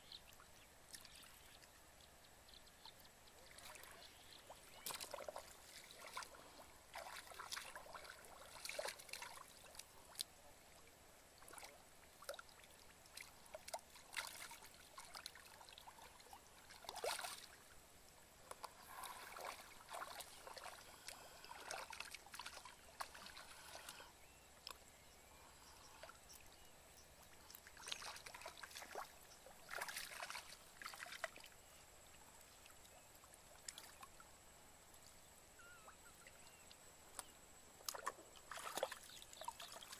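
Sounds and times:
muddy water splashing: 2.8s - 17.8s, 18.4s - 24.8s, 27.3s - 31.7s, 37.8s - 39.9s
faint high tone: 35.6s - 36.4s.

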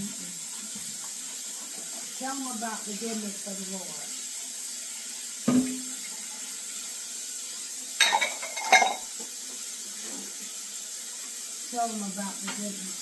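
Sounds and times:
tap water running into sink: 0.0s - 13.0s
dishes clattering: 5.5s - 5.8s, 8.0s - 9.1s.

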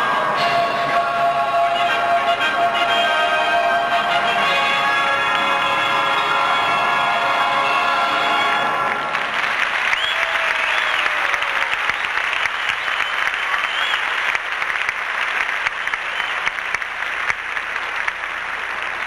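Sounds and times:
audience applauding: 8.4s - 19.0s.

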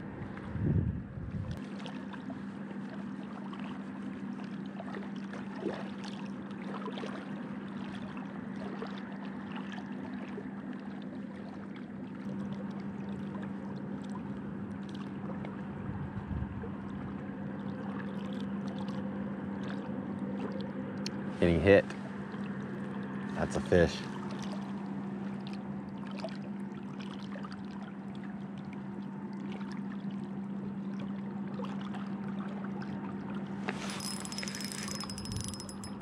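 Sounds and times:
low hum: 0.0s - 5.0s, 33.3s - 36.0s.

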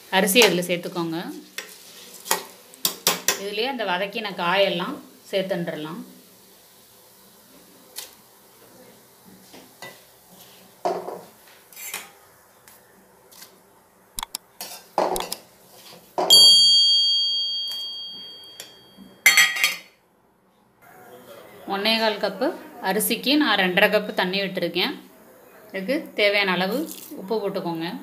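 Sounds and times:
spoon scraping metal pot: 11.7s - 12.2s, 14.2s - 16.0s
bright high ding: 16.3s - 19.4s.

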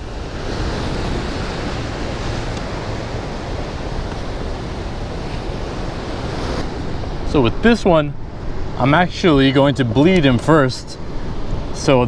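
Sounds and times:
waves breaking over rocks: 0.0s - 12.0s
wind: 0.0s - 12.0s.

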